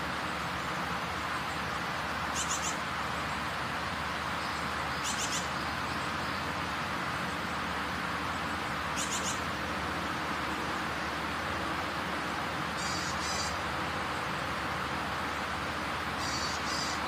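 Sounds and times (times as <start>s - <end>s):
steady background noise: 0.0s - 17.0s
bird chirping trills: 0.5s - 3.4s, 4.3s - 7.7s, 8.3s - 9.6s, 12.2s - 14.3s, 16.1s - 17.0s.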